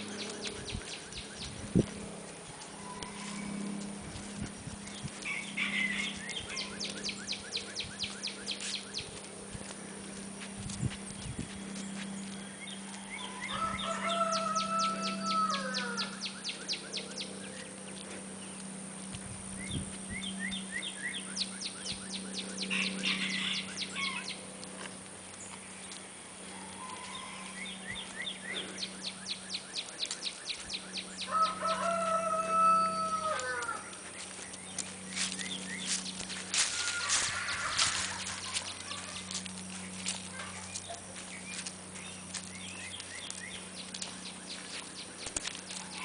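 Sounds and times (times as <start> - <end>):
low steady hum: 0.0 - 46.0
rooster crowing: 2.8 - 3.6, 5.2 - 6.8, 12.9 - 16.3, 22.7 - 24.4, 26.5 - 27.9, 31.2 - 34.0, 36.6 - 39.2.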